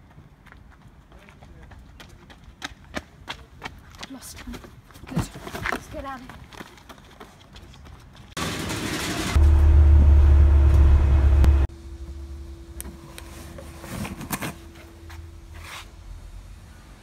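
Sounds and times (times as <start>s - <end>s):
loud low rumble: 9.2s - 12.6s
steady hum: 9.4s - 13.2s.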